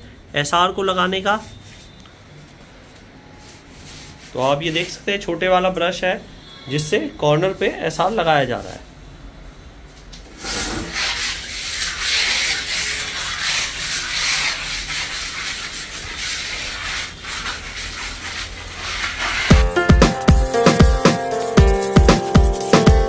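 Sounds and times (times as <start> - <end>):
adhesive scraped across concrete floor: 10.2 - 19.5.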